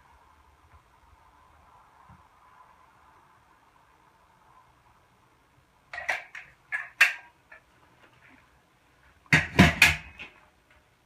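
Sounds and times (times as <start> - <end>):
knocks on concrete floor: 9.3 - 10.2.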